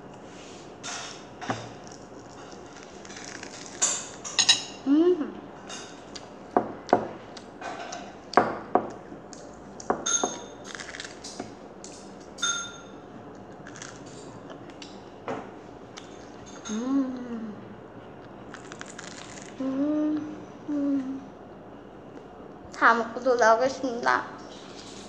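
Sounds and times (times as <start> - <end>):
child humming: 4.9 - 5.4, 16.7 - 17.7, 19.6 - 21.3
child chewing with lip smacks: 6.0 - 6.4, 13.2 - 14.9, 18.2 - 19.6
metal clinking on dish: 10.0 - 10.5, 12.4 - 12.9.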